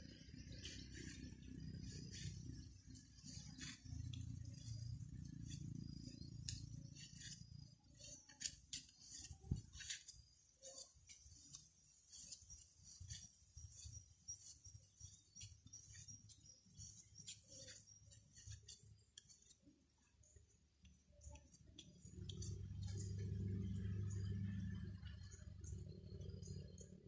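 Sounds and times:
low steady hum: 0:00.0 - 0:27.0
bamboo strips clicking: 0:05.3 - 0:12.4.

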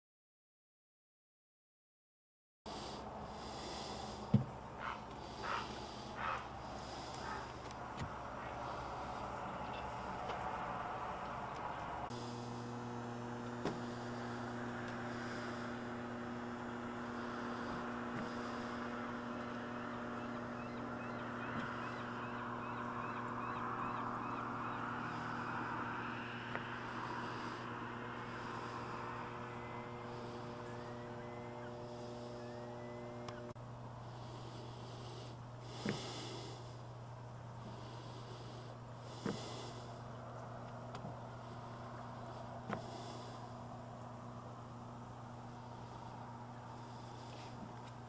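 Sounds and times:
electrical hum: 0:02.7 - 0:48.0.

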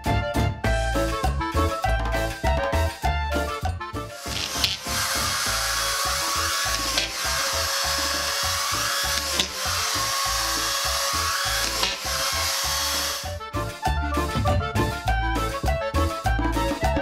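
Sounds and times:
screws driven into drywall: 0:04.2 - 0:13.3
screw gun whining: 0:04.2 - 0:13.4.

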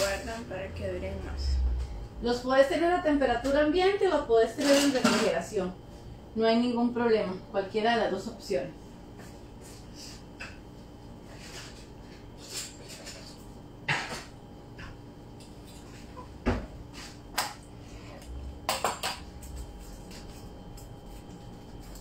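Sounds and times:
faint steady hum: 0:00.0 - 0:22.0
kitchen utensils clinking and knocking: 0:04.6 - 0:05.4.

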